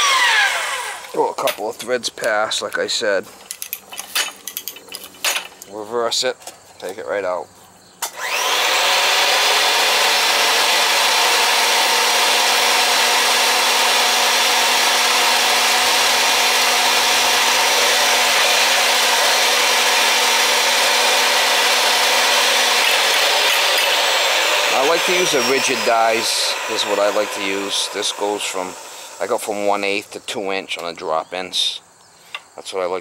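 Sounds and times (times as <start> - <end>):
pipe threading machine motor whining: 0.0 - 1.2, 8.0 - 30.0.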